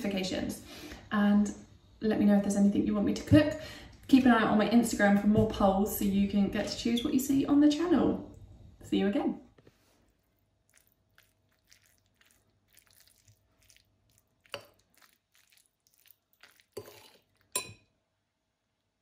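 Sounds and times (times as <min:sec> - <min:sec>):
metal fork scraping a bowl: 0:16.4 - 0:17.8
fork clinking on bowl: 0:16.4 - 0:17.9.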